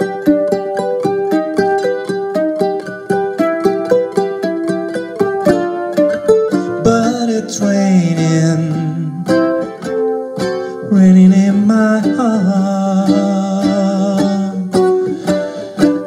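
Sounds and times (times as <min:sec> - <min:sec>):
ukulele strumming: 0:00.0 - 0:16.0
man singing wordless held notes: 0:06.6 - 0:09.6, 0:10.6 - 0:15.7.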